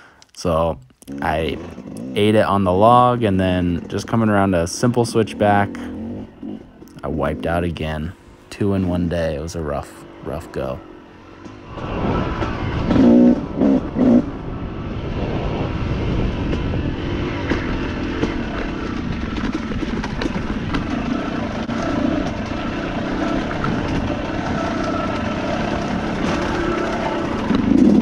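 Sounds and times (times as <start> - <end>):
two-stroke dirt bike engine revving: 1.1 - 9.1, 12.9 - 14.3.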